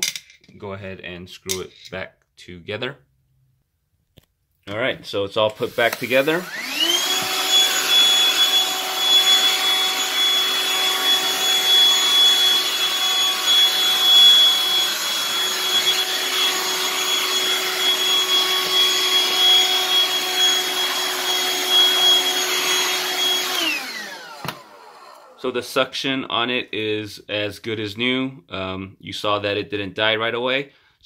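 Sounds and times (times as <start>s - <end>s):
hand vacuum running with high whine: 5.6s - 25.6s.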